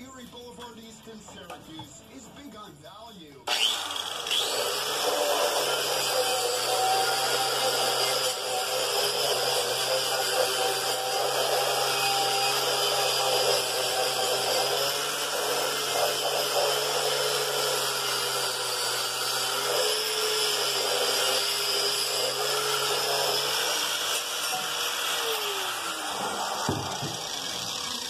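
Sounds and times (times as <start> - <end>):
wire brush grinder scouring metal: 3.5 - 28.0.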